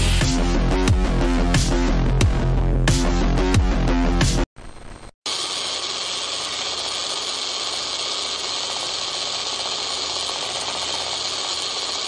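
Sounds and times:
power drill whirring: 5.3s - 12.0s.

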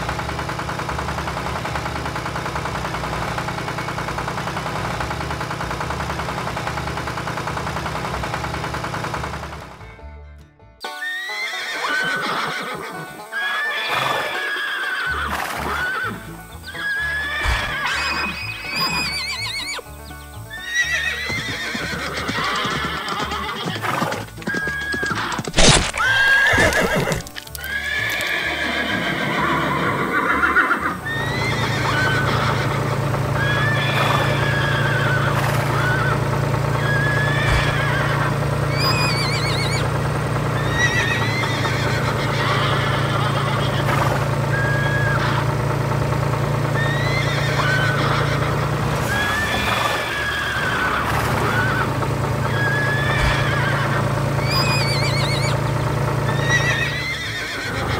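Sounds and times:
hoofbeats clip-clopping: 0.0s - 10.0s, 10.8s - 57.9s
background music: 9.6s - 32.8s
horse whinnying: 10.9s - 19.9s, 20.5s - 39.9s, 40.6s - 45.5s, 46.8s - 57.9s.

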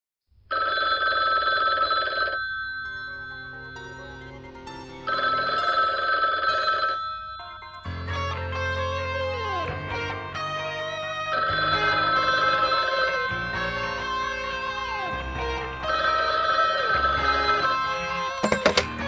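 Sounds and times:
telephone bell ringing: 0.5s - 8.3s, 11.3s - 13.8s, 15.8s - 19.0s
music: 2.8s - 19.0s.

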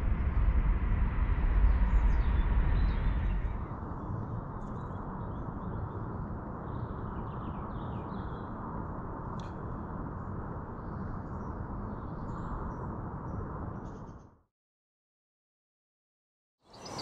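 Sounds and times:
low rumble: 0.0s - 5.7s
small birds chirping: 16.7s - 17.0s.

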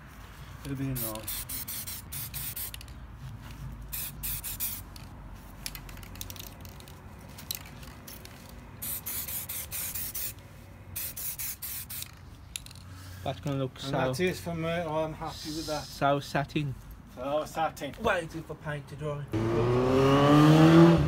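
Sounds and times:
spray-paint can hissing: 0.9s - 2.9s, 3.9s - 5.0s, 8.8s - 10.4s, 11.0s - 12.7s.

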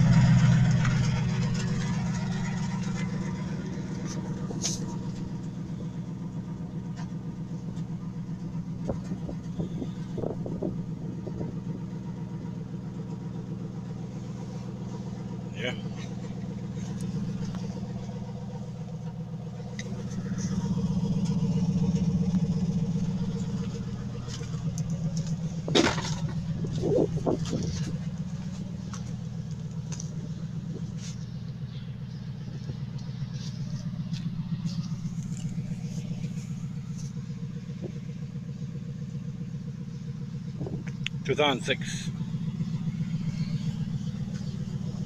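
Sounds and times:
car engine idling: 0.0s - 45.0s.

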